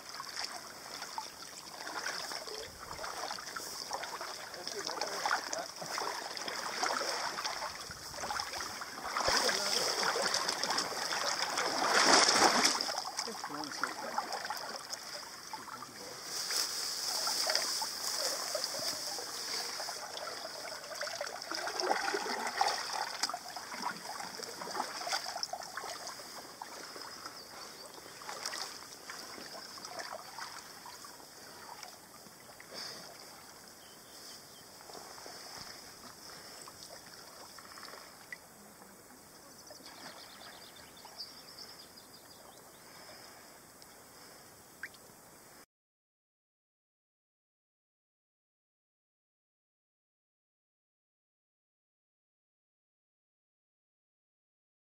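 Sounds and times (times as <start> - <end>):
paddle strokes splashing: 0.0 - 39.0
water lapping around hull: 0.0 - 45.6.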